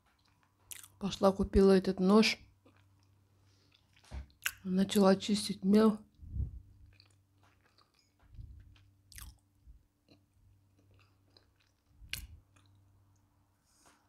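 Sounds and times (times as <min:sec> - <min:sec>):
chewing and crunching chalk: 0:00.0 - 0:01.0, 0:02.6 - 0:04.6, 0:06.8 - 0:09.4, 0:10.0 - 0:13.2.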